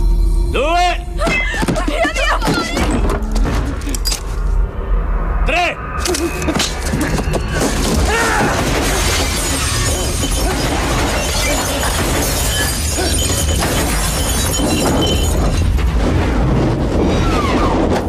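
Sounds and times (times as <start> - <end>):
glass bottles shattering: 6.6 - 15.9.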